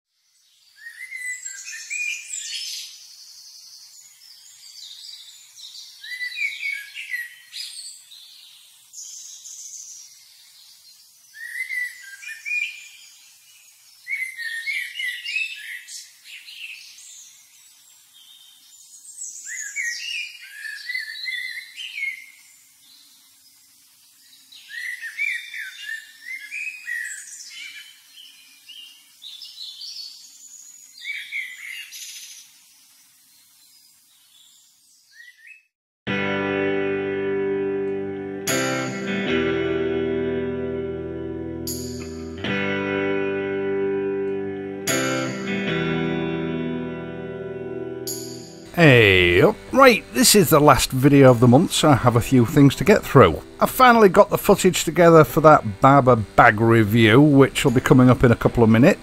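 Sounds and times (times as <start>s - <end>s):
bird chirping and warbling: 34.2s - 35.7s.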